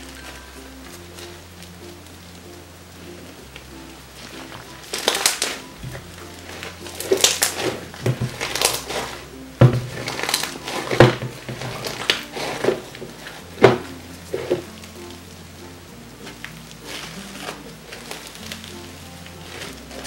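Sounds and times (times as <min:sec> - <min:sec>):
slime squishing and popping: 0:03.5 - 0:15.1.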